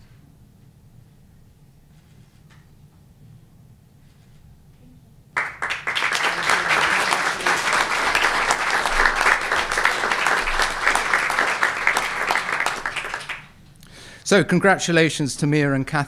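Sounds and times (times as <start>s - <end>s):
audience clapping: 5.4s - 13.9s.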